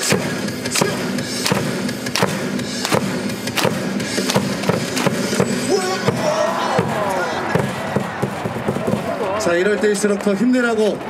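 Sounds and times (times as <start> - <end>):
cheer music with bass line: 0.0 - 9.9
stadium cheering: 2.8 - 11.0.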